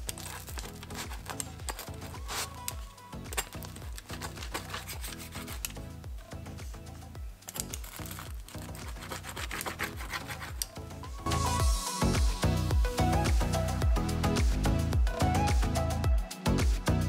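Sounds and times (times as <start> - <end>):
pizza cutter rolling through crust: 0.0 - 2.8, 3.4 - 5.8, 7.5 - 10.8
music with steady beat: 0.0 - 17.0.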